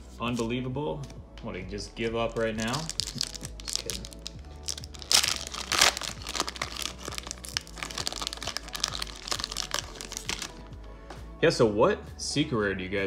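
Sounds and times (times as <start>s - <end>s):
foil wrapper tearing and crinkling: 2.6s - 10.6s.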